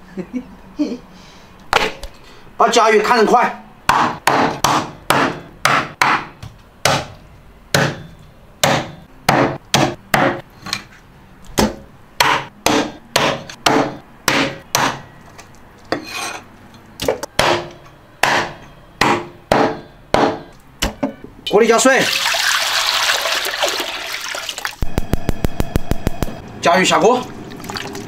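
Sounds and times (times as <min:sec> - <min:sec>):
cleaver chopping: 0:03.9 - 0:07.1, 0:07.7 - 0:10.4, 0:11.6 - 0:15.0, 0:17.3 - 0:21.0.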